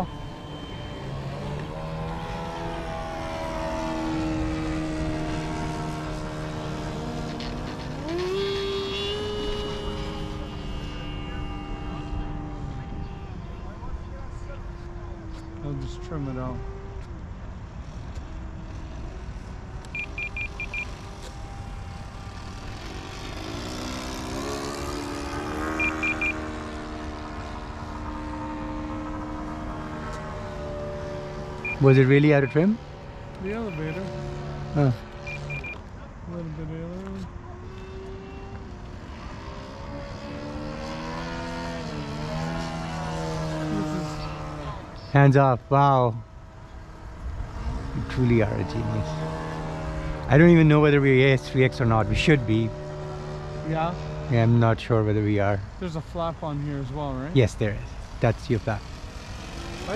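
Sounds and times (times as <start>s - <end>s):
model plane motor whine: 0.0s - 35.8s, 37.0s - 45.3s, 57.9s - 59.9s
short high transmitter beeps: 19.9s - 21.0s, 25.8s - 26.4s, 31.6s - 31.8s, 35.2s - 35.8s.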